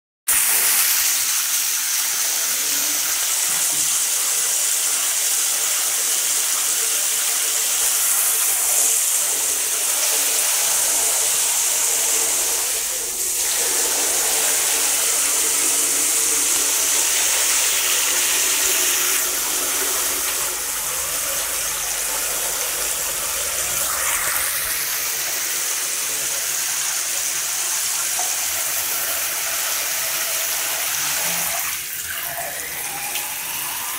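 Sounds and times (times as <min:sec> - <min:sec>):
tap water splashing into basin: 0:03.0 - 0:25.4, 0:27.2 - 0:30.9.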